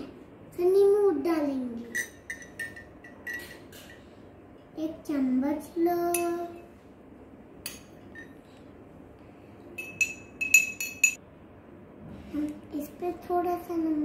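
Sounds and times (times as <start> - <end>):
spoon clinking against glass: 1.9 - 3.7, 7.7 - 8.4, 9.8 - 11.2.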